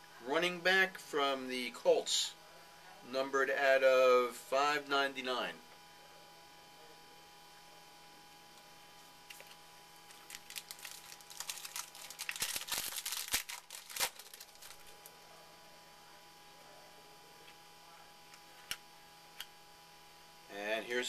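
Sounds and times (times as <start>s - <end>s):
faint electrical hum: 0.0s - 21.0s
cards and packaging crinkling: 9.2s - 15.2s.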